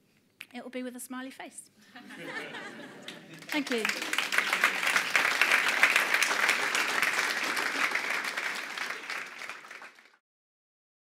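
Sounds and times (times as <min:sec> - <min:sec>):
audience applauding: 0:02.2 - 0:10.2.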